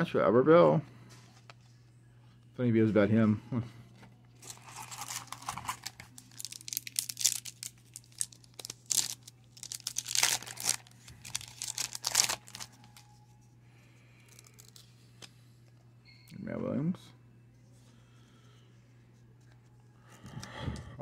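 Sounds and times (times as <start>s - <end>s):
foil wrapper crinkling and tearing: 4.4s - 13.2s, 14.2s - 14.9s.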